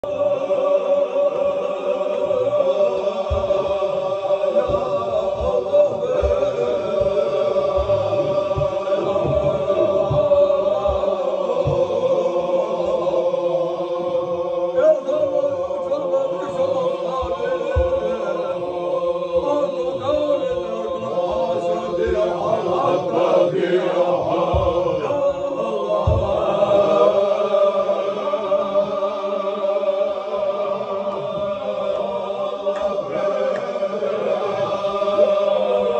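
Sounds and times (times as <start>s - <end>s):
men chanting in chorus: 0.0s - 35.9s
low thumps: 2.5s - 15.7s, 16.4s - 27.9s.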